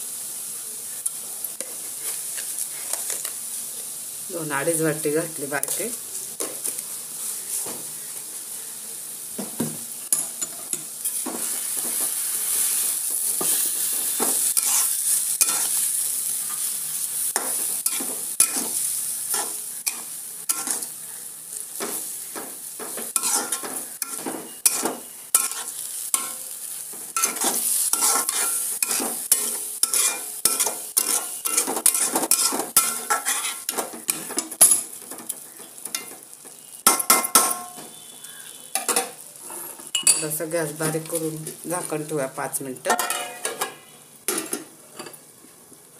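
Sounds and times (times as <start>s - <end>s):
sizzling bubbling mixture: 0.0s - 45.9s
metal spatula scraping a pan: 13.5s - 15.9s, 17.4s - 20.9s, 22.9s - 35.2s.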